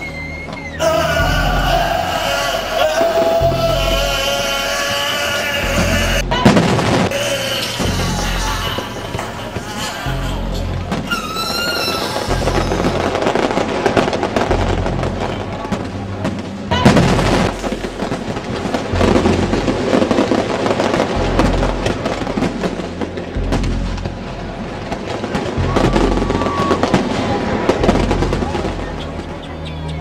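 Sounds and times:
fireworks crackling and bursting: 0.0 - 29.3
music with pulsing bass: 0.0 - 30.0
man screaming: 0.8 - 6.5, 7.1 - 13.3.

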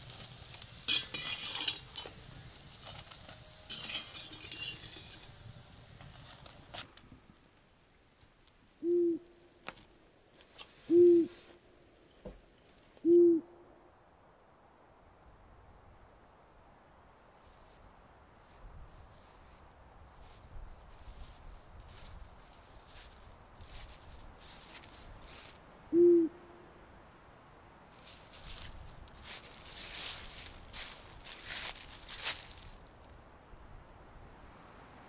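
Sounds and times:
food sizzling in a pan: 0.0 - 6.7
owl hooting: 8.8 - 9.5, 10.8 - 11.6, 13.0 - 13.7, 25.9 - 26.6.

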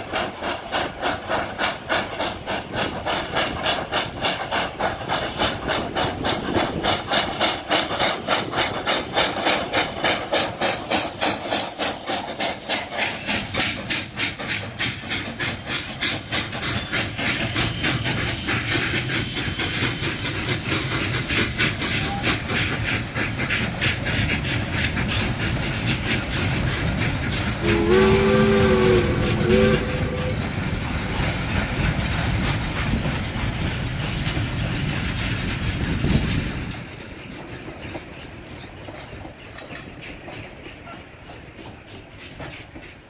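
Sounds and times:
train wheels clicking over rail joints: 0.0 - 43.0
steam locomotive whistle: 21.8 - 22.8, 27.6 - 30.7.

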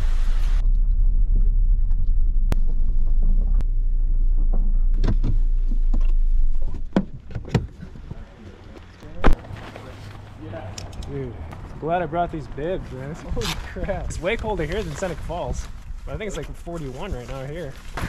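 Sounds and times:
car rumble inside cabin: 0.0 - 8.4.

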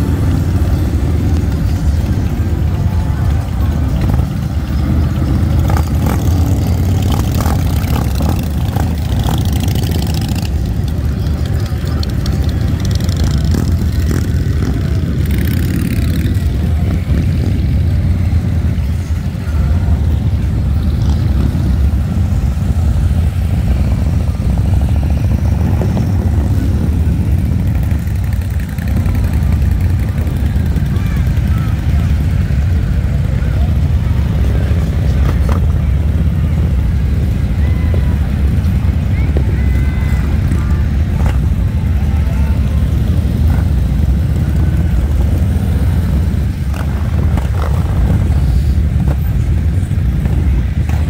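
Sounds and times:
vehicle engine and road noise: 0.0 - 51.0.

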